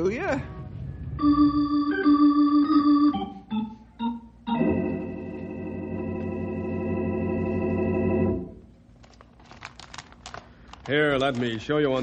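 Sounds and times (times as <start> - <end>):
organ chords: 0.6 - 8.7.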